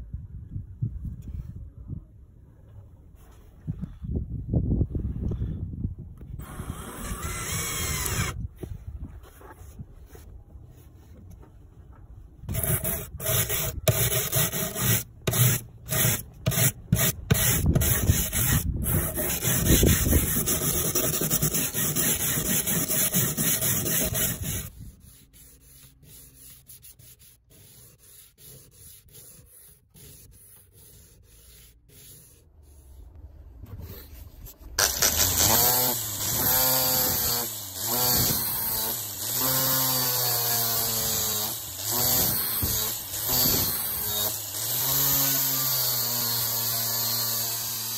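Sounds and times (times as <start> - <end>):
drill motor whine: 6.4 - 8.4
sanding block rubbing metal: 12.5 - 33.0.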